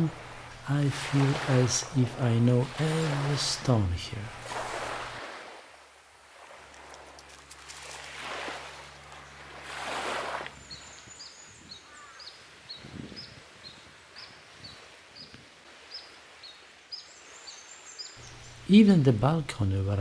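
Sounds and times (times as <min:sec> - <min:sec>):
small waves washing ashore: 0:00.0 - 0:11.1, 0:13.5 - 0:20.0
bird chirping: 0:10.6 - 0:15.3, 0:15.9 - 0:19.1.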